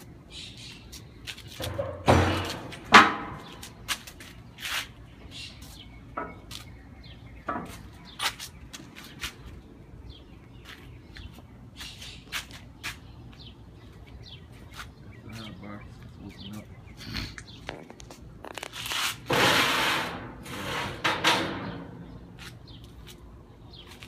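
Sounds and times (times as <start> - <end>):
birds chirping: 0.0 - 19.0, 21.6 - 24.0
knocks and clanks: 1.6 - 3.6, 19.3 - 22.0.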